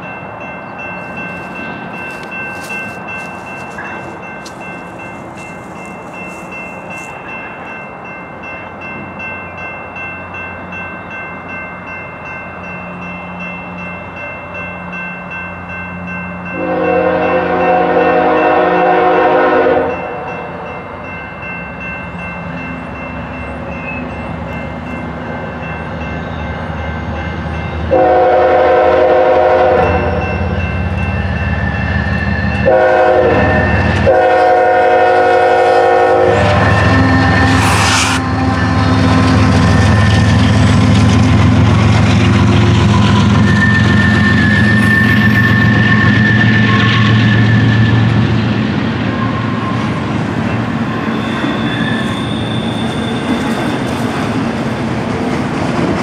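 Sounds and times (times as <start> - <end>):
locomotive air horn blasts: 16.5 - 20.2, 27.9 - 30.3, 32.6 - 38.4
train wheels clacking on rails: 22.1 - 56.0.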